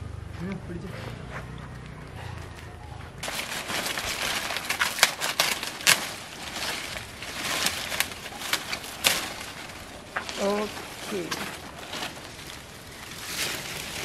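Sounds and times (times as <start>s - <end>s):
dry leaves rustling and crackling: 3.1s - 14.0s
leaves snapping: 3.2s - 14.0s.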